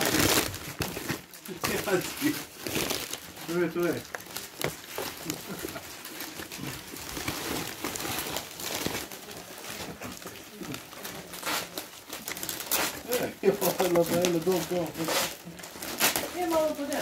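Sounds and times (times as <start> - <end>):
wrapping paper rustling: 0.0 - 17.0.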